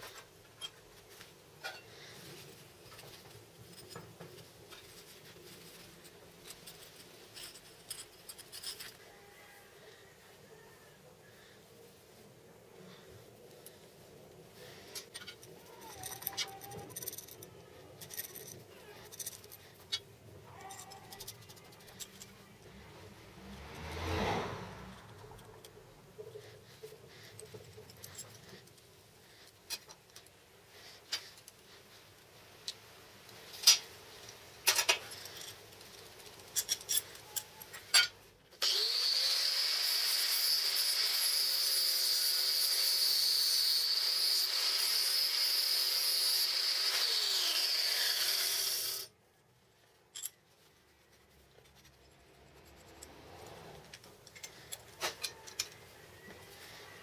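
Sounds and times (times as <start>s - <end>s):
small metal parts clinking: 0.0s - 0.8s, 1.6s - 9.4s, 14.7s - 22.8s, 24.9s - 30.4s, 33.4s - 38.3s, 50.0s - 50.8s, 51.5s - 55.9s
angle grinder whining: 38.6s - 49.1s.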